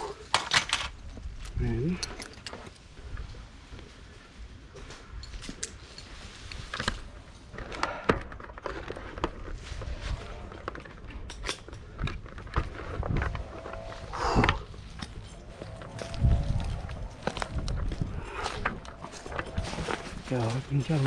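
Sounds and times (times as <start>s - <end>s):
footsteps: 12.2s - 21.0s.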